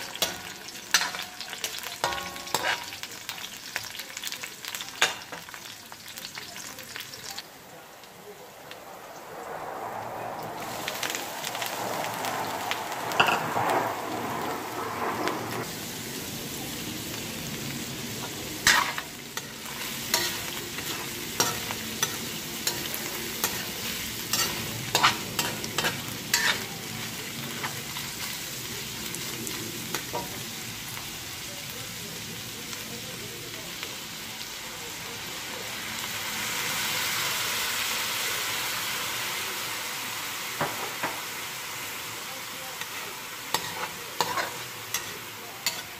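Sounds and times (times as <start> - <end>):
metal spatula scraping a pan: 0.0 - 3.0, 18.6 - 26.8, 42.8 - 45.9
meat and onions sizzling in a wok: 0.0 - 9.2, 10.6 - 45.9.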